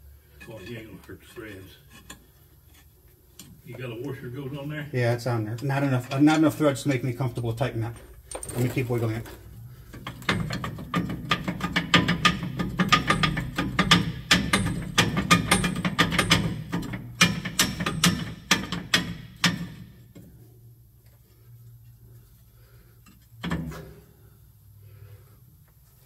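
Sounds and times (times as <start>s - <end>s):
metallic clicking and rattling: 10.0s - 19.8s.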